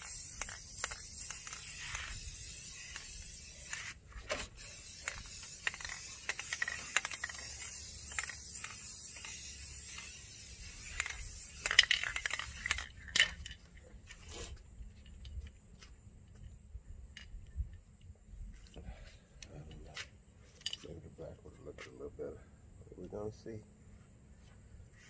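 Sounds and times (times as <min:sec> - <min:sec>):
spray can clicks and taps: 0:00.0 - 0:03.9, 0:04.6 - 0:12.9.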